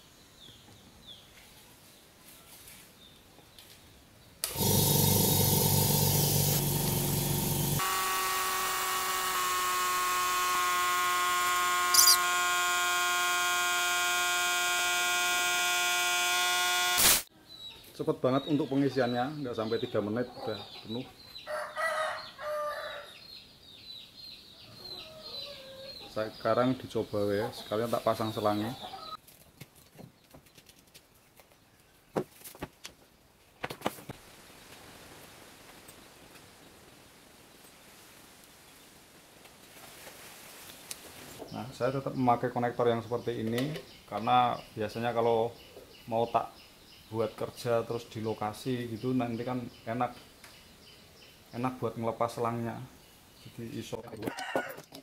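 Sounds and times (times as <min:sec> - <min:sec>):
air compressor motor whine: 0:04.4 - 0:17.2
air hose fittings clicking: 0:11.9 - 0:12.2
short air hiss: 0:17.0 - 0:17.3
faint steady hiss: 0:33.3 - 0:54.1.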